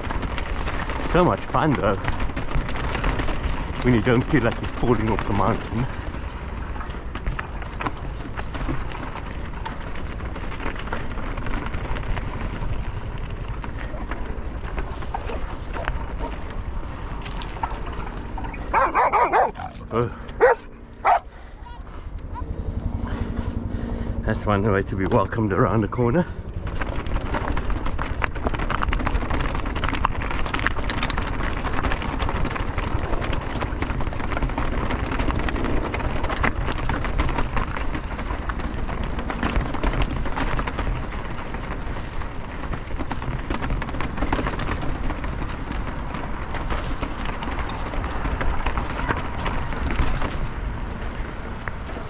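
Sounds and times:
tyres rolling over rock: 0:00.0 - 0:21.3, 0:24.7 - 0:52.0
bike knocking and clattering: 0:00.0 - 0:22.1, 0:24.4 - 0:52.0
rush of ride noise: 0:00.0 - 0:52.0.

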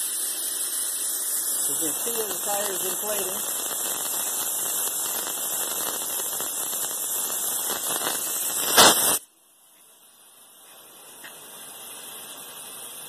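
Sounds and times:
compressed air hissing: 0:00.0 - 0:09.2.

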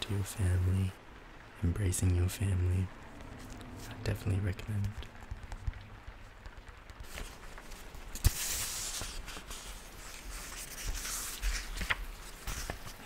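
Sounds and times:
pages rustling: 0:03.2 - 0:13.0.

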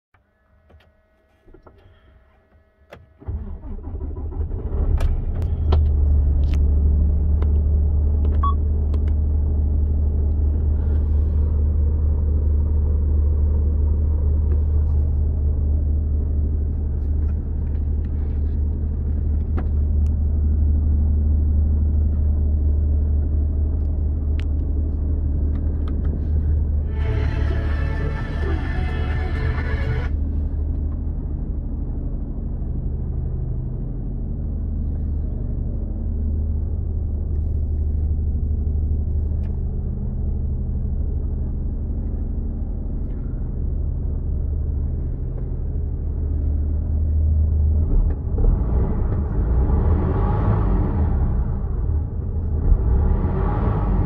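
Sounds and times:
diesel truck engine idling: 0:26.2 - 0:30.7.

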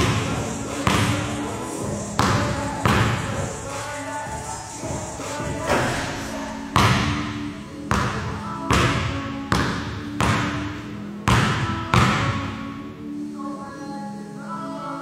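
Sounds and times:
basketball bouncing on gym floor: 0:00.0 - 0:01.4, 0:02.2 - 0:03.4, 0:06.7 - 0:10.7, 0:11.3 - 0:12.6.

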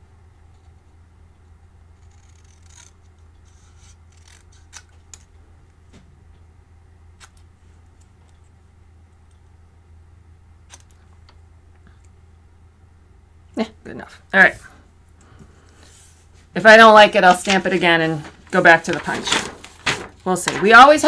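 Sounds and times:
scissors snipping cardstock: 0:02.0 - 0:05.3, 0:10.7 - 0:11.0.

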